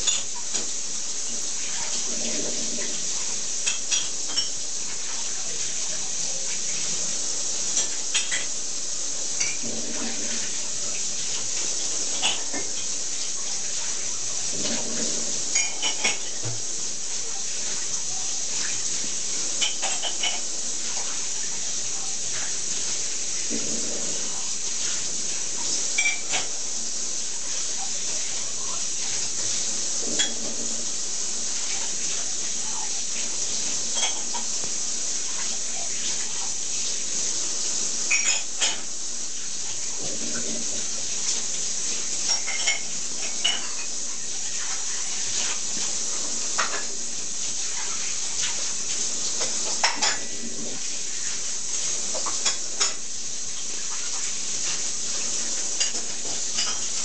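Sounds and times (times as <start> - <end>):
dishes and cutlery clinking: 0.0 - 0.8, 3.6 - 5.2, 7.7 - 8.6, 9.4 - 10.6, 11.2 - 13.0, 14.5 - 16.6, 19.6 - 21.2, 25.6 - 26.6, 30.0 - 30.7, 31.6 - 34.7, 38.1 - 38.9, 42.2 - 47.0, 47.8 - 50.5, 51.8 - 53.0, 54.0 - 57.0
steady hiss: 0.0 - 57.0.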